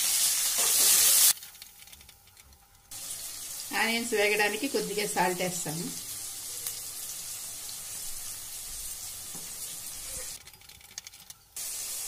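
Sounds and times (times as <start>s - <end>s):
onions sizzling in hot oil: 0.0s - 1.4s, 2.9s - 10.4s, 11.6s - 12.0s.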